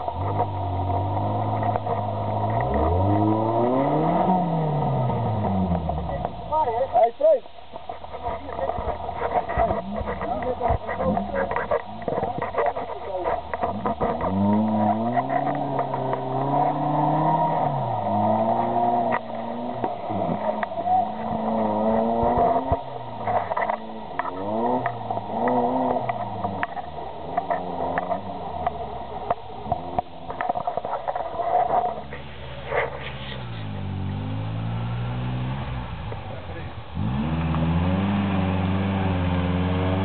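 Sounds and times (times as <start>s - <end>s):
knocks and scrapes: 0.0s - 4.0s, 7.7s - 33.9s
engine revving up and down: 0.0s - 6.9s, 8.2s - 40.0s.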